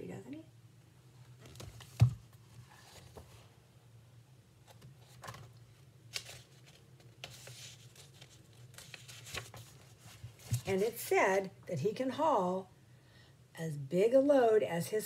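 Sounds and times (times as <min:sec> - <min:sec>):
low room hum: 0:00.0 - 0:15.0
paper rustling: 0:04.7 - 0:10.8.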